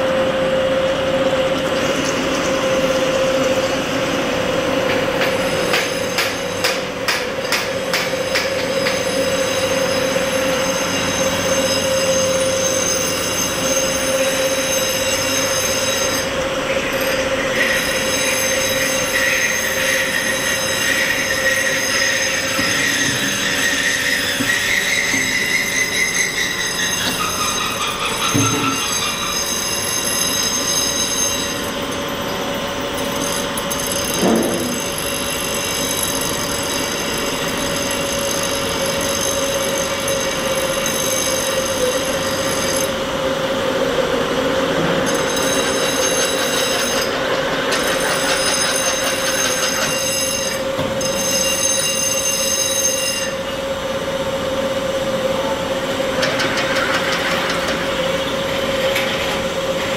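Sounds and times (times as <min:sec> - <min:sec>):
metallic squeal from cutting: 0:07.9 - 0:32.4, 0:33.0 - 0:43.0, 0:45.0 - 0:53.5
drill machine running: 0:08.1 - 0:43.2, 0:44.4 - 0:53.5.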